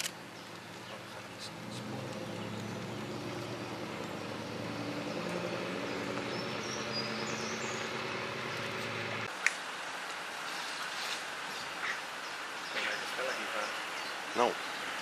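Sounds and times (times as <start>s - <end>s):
vehicle engine idling: 0.1s - 9.3s.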